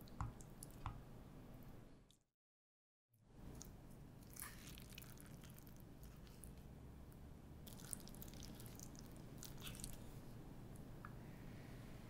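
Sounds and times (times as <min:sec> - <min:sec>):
low room hum: 0:03.2 - 0:12.0.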